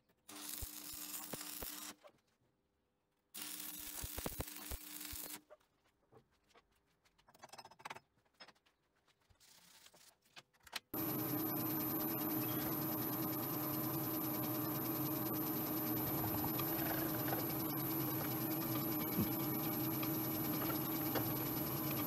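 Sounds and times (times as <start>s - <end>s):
welding arc crackling and hissing: 0.4s - 1.9s, 3.4s - 5.4s, 11.0s - 22.0s
milling machine whine: 11.0s - 22.0s
steady hum: 11.0s - 22.0s.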